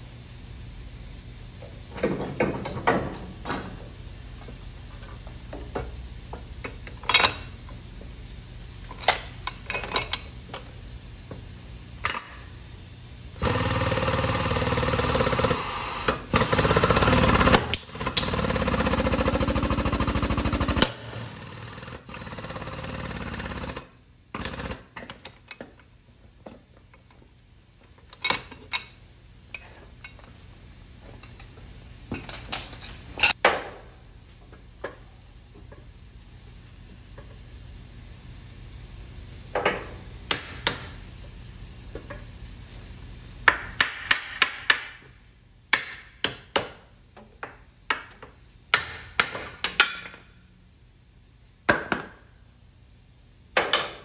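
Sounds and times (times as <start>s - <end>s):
pneumatic air hammer rattling: 13.4s - 25.8s.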